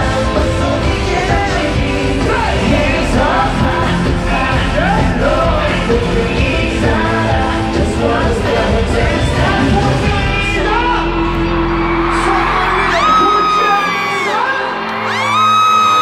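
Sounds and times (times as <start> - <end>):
male vocals singing and rapping: 0.0 - 11.3
amplified pop-rock backing: 0.0 - 16.0
crowd yelling: 9.8 - 16.0.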